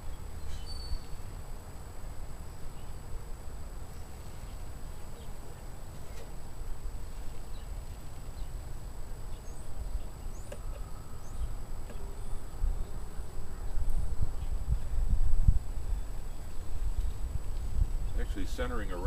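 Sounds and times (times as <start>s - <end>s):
faint high bird chirps: 0.0s - 1.3s, 9.3s - 14.6s.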